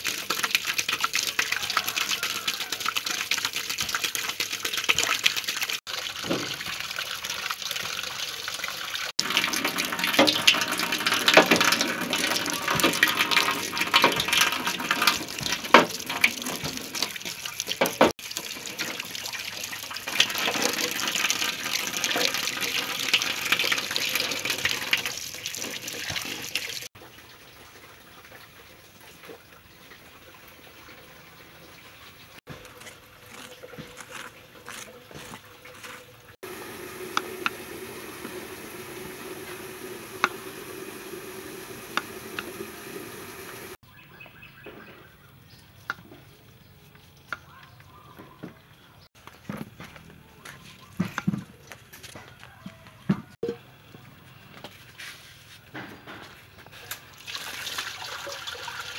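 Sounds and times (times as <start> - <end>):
tap water splashing into pot: 0.0 - 27.3, 36.4 - 41.1, 56.9 - 58.9.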